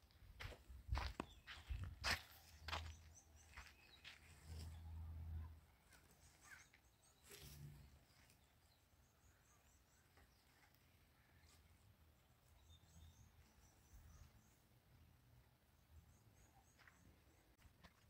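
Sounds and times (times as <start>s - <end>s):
faint outdoor ambience: 0.0s - 18.0s
faint high bird chirps: 1.1s - 14.7s.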